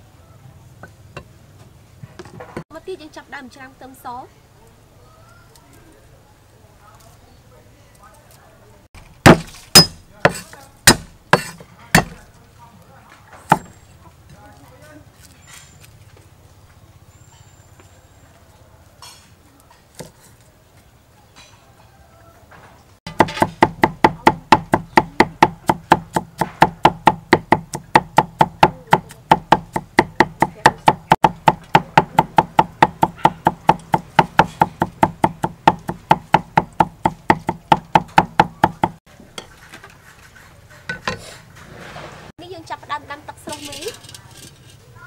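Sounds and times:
cleaver chopping on wooden board: 0:09.2 - 0:12.2, 0:23.1 - 0:39.0.

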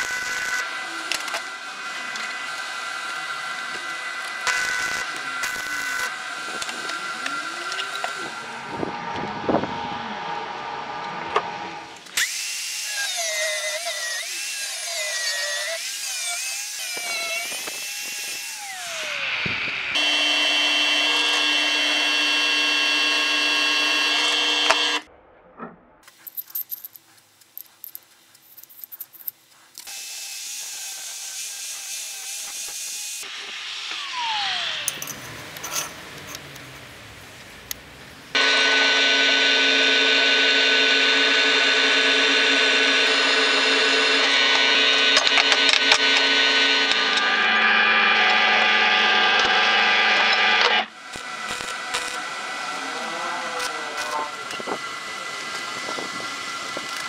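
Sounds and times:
drill press drilling into steel: 0:00.0 - 0:08.3, 0:12.0 - 0:25.0, 0:38.4 - 0:52.8
angle grinder grinding steel: 0:00.0 - 0:09.3, 0:10.9 - 0:25.0, 0:28.7 - 0:36.7, 0:38.3 - 0:57.0.

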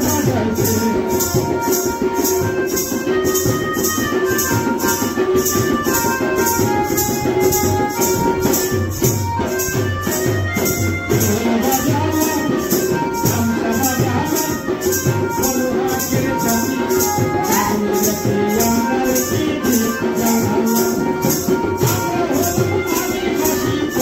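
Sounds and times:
melody of held notes: 0:00.0 - 0:24.0
shaker or tambourine beat: 0:00.0 - 0:24.0.

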